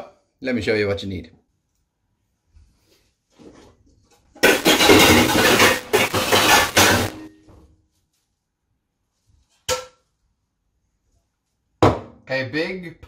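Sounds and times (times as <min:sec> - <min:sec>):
metal pots and pans clattering: 0:04.4 - 0:07.4
sharp metal clank: 0:04.4 - 0:07.4.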